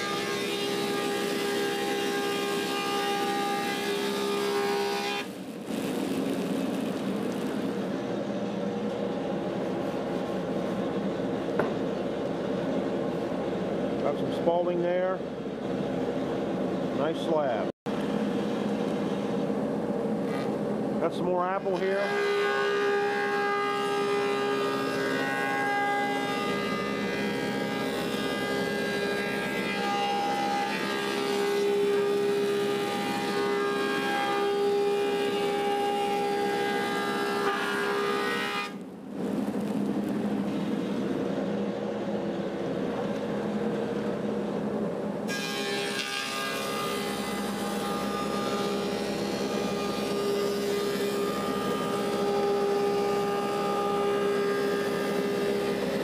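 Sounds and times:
cutterhead planing wood: 0.0s - 5.3s, 21.4s - 38.8s, 45.3s - 56.0s.

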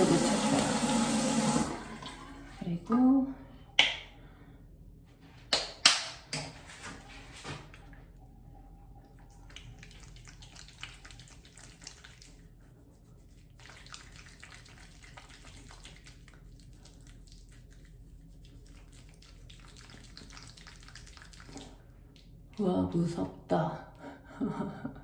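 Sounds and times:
wet swishing of lather: 9.2s - 22.4s.

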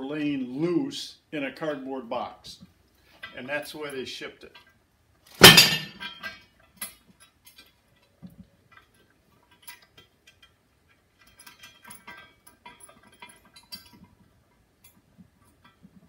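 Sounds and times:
small metal clicks and clinks: 6.0s - 15.9s.

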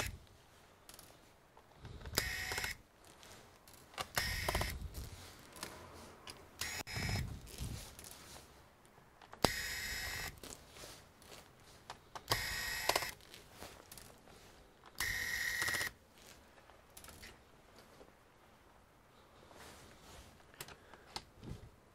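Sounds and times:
electric screwdriver whining: 2.1s - 2.8s, 4.1s - 4.8s, 6.6s - 7.3s, 9.4s - 10.3s, 12.3s - 13.2s.

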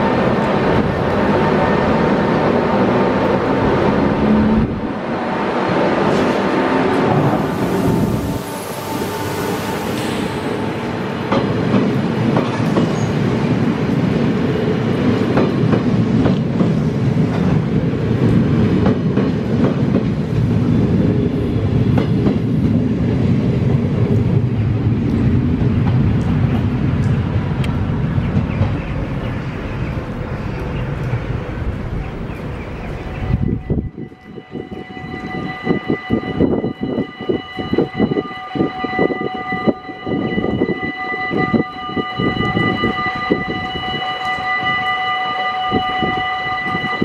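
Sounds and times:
train coaches rumbling past: 0.0s - 47.0s.

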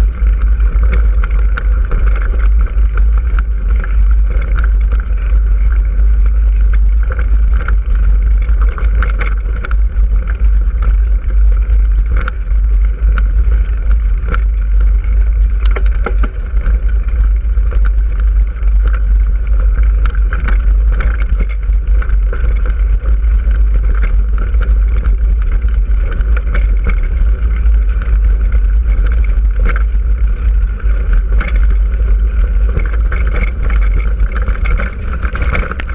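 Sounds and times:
wind buffeting microphone: 0.0s - 35.9s
tyres crunching over gravel: 33.6s - 35.9s.

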